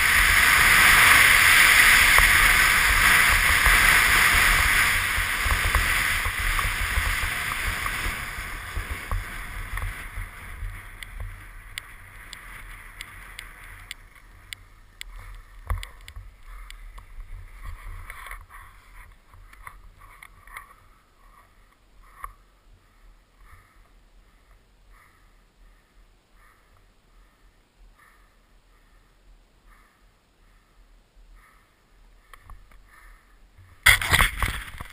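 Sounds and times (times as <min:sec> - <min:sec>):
skis hissing over snow: 0:00.0 - 0:14.4
skis crunching on rough snow: 0:00.0 - 0:21.4, 0:33.8 - 0:34.9
wind rumbling on microphone: 0:00.0 - 0:24.4, 0:33.5 - 0:34.9.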